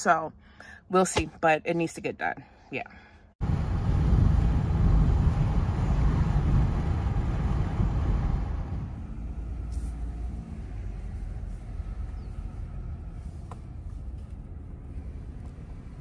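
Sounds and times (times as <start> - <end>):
road and engine rumble in car: 3.3 - 16.0.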